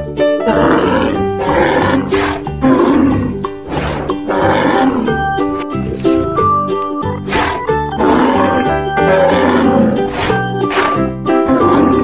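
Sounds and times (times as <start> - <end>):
background music: 0.0 - 12.0
cattle lowing: 0.4 - 12.0.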